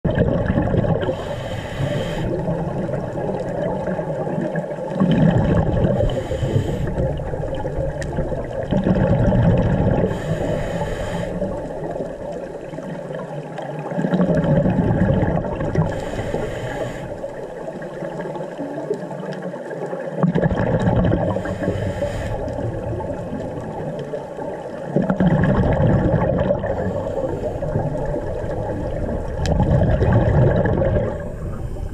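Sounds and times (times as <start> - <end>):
exhaled bubbles rushing: 0.0 - 31.9
underwater rumble: 0.0 - 31.9
regulator inhale hiss: 1.1 - 2.5, 6.0 - 7.2, 10.0 - 12.0, 15.9 - 17.6, 21.4 - 22.7, 26.6 - 28.2, 31.1 - 31.9.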